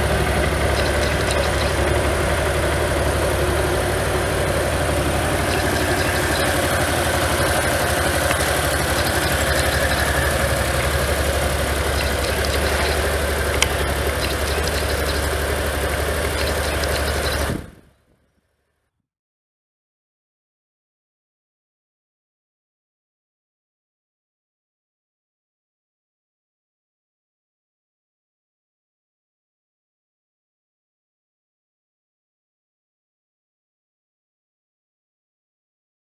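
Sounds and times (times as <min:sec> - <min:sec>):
motorcycle engine idling: 0:00.0 - 0:18.0.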